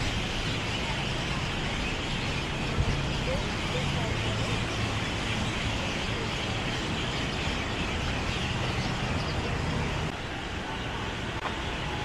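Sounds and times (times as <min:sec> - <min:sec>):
traffic din: 0:00.0 - 0:12.0.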